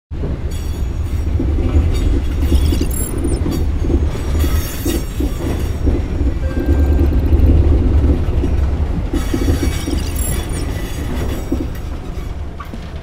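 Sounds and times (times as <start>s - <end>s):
train running gear rumbling: 0.1s - 13.0s
high-pitched wheel squeals: 6.4s - 7.4s.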